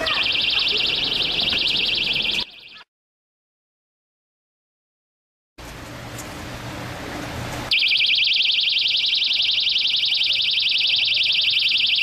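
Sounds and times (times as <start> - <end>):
safety alarm shrieking: 0.0 - 2.9, 7.7 - 12.0.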